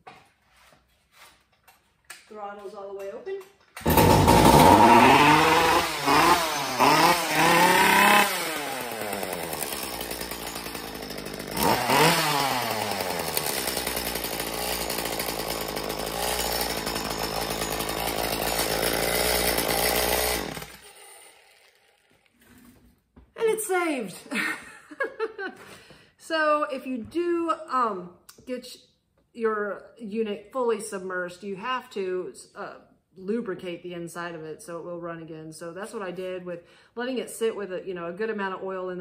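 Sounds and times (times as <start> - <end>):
two-stroke chainsaw engine revving: 3.8 - 22.0.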